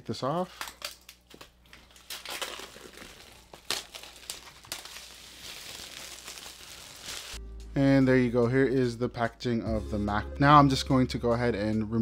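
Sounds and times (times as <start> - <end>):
shrink wrap crinkling: 0.1 - 7.4
sharp crackles of plastic: 0.4 - 7.4.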